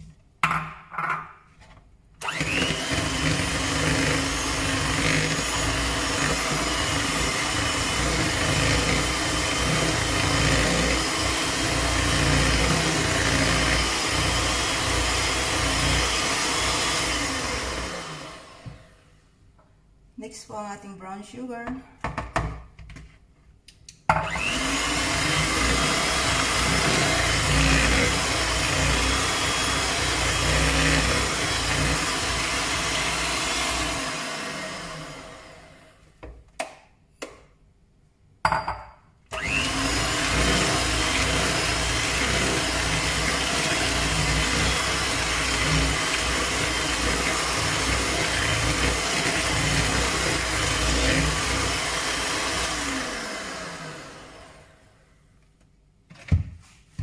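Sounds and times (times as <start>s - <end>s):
electric hand mixer running: 2.2s - 19.1s, 24.1s - 36.0s, 39.3s - 55.1s.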